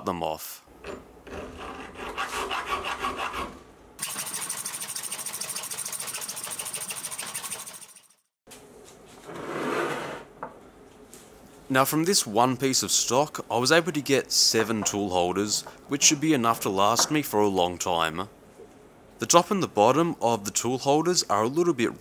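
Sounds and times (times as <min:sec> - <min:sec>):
saw cutting steel bar: 0:01.3 - 0:08.2.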